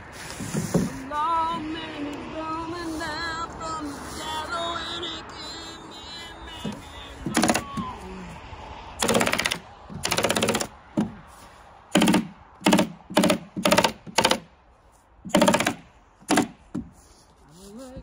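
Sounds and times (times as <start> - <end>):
power stapler firing: 9.0 - 10.7, 12.0 - 14.4, 15.3 - 16.6.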